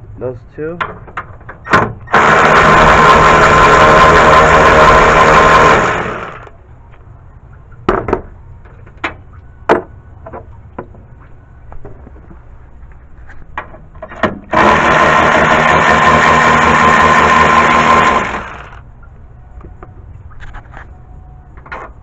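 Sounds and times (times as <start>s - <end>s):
electric ratchet motor running: 2.1s - 6.5s, 14.5s - 18.8s.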